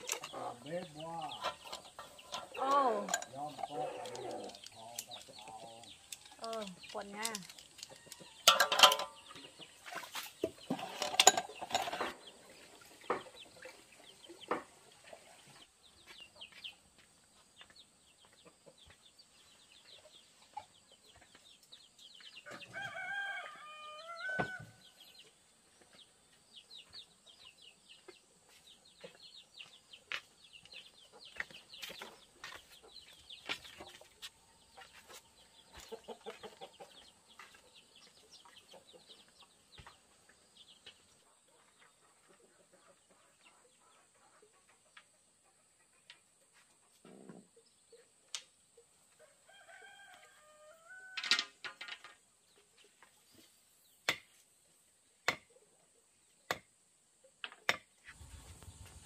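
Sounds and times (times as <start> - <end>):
chickens clucking: 0.0 - 22.9, 25.2 - 49.4
rooster crowing: 22.6 - 24.8, 49.5 - 51.3.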